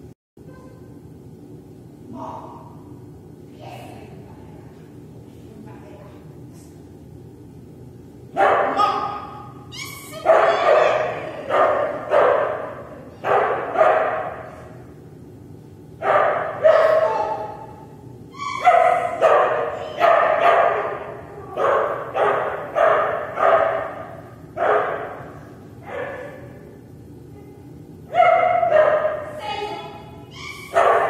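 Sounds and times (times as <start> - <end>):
dog barking in echoing hall: 8.3 - 14.8, 16.0 - 26.9, 28.1 - 31.0.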